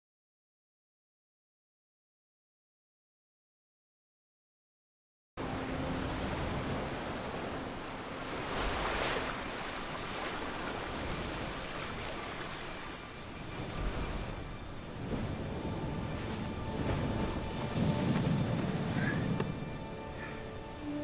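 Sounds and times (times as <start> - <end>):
ocean surf washing onto beach: 5.4 - 20.5.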